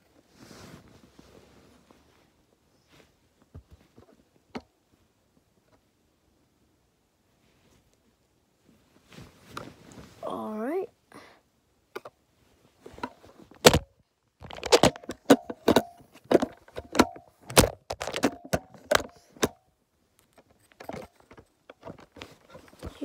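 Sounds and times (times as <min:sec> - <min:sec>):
handling knocks and clicks: 0:12.8 - 0:19.6, 0:20.2 - 0:23.0.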